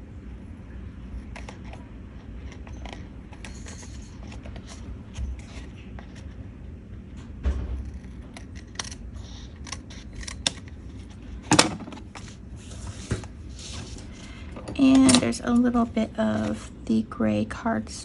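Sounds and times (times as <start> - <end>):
scissors snipping: 7.9 - 10.7.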